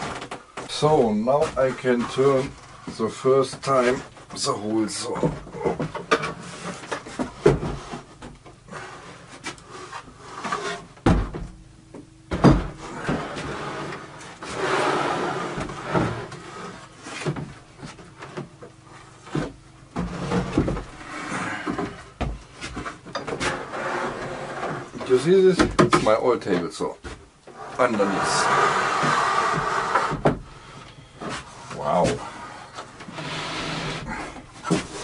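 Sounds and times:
plywood scraping on bench: 0:05.2 - 0:11.0, 0:12.8 - 0:25.2, 0:27.5 - 0:35.0
heavy thumps: 0:17.2 - 0:23.6, 0:27.1 - 0:32.3.

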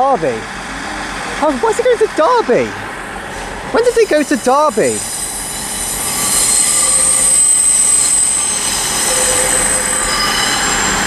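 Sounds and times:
train wheels squealing on rails: 0:03.1 - 0:11.0.

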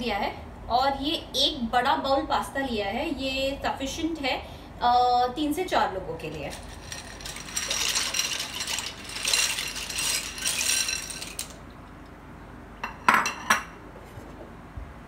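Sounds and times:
dry pasta pouring and rattling: 0:06.3 - 0:11.6.

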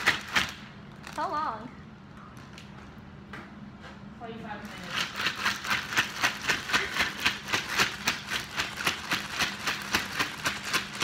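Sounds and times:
ice rattling in shaken plastic bag: 0:04.6 - 0:11.0.

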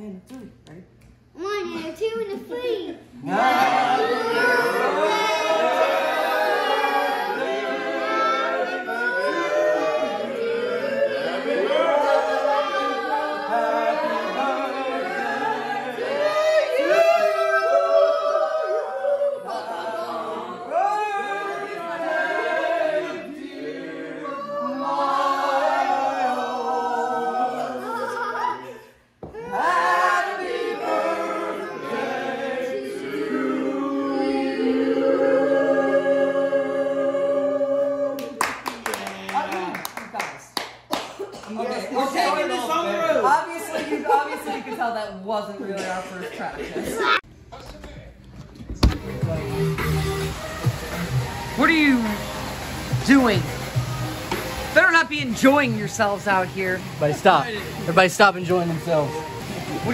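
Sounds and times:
group of people singing a capella: 0:03.1 - 0:38.8, 0:58.6 - 0:59.9.

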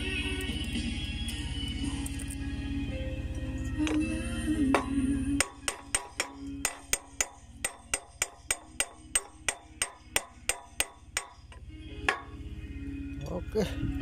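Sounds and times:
hammer striking steel: 0:04.7 - 0:12.4.

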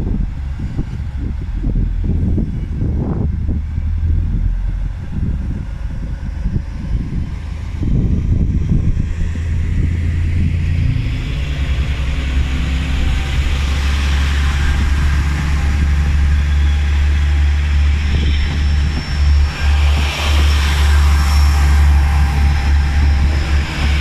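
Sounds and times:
diesel engine drone: 0:00.0 - 0:24.0
train running gear hiss: 0:12.5 - 0:24.0.

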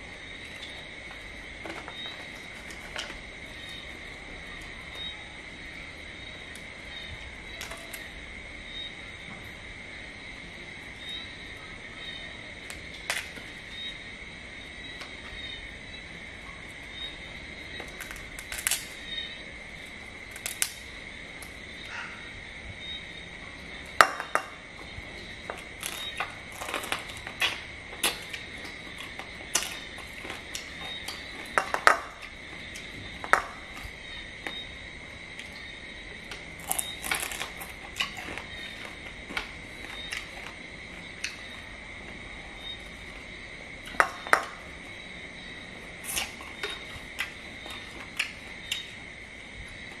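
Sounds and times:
crab shells cracking: 0:17.8 - 0:19.0, 0:20.3 - 0:21.5, 0:25.4 - 0:33.9, 0:36.3 - 0:40.6
chewing: 0:25.0 - 0:34.6, 0:36.3 - 0:41.6, 0:46.0 - 0:49.0.

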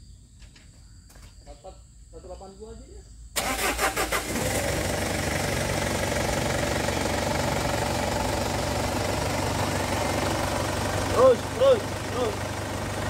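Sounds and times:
diesel engine idling: 0:03.4 - 0:13.0.

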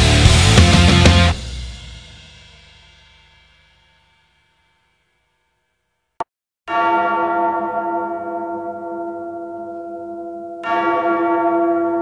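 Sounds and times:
bell tolling: 0:06.7 - 0:12.0.

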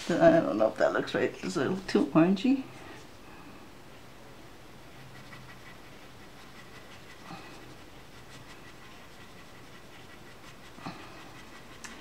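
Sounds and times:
low room hiss: 0:00.0 - 0:12.0
pencil scratching on paper: 0:05.0 - 0:12.0.

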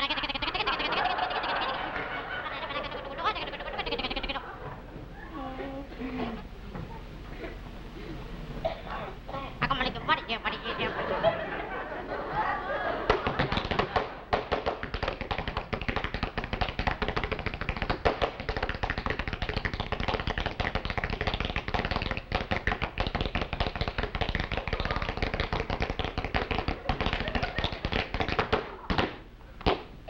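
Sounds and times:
rapid tapping and clattering: 0:13.2 - 0:28.6.

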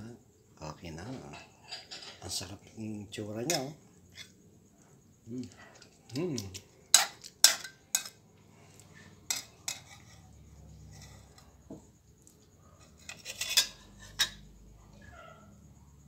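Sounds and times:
metal utensils scraping a wok: 0:03.4 - 0:04.4, 0:05.8 - 0:08.2, 0:08.9 - 0:11.6, 0:12.8 - 0:14.5.

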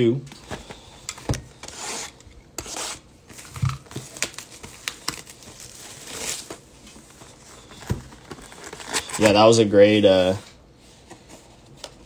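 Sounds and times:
cardboard rustling and crinkling: 0:03.3 - 0:09.6.

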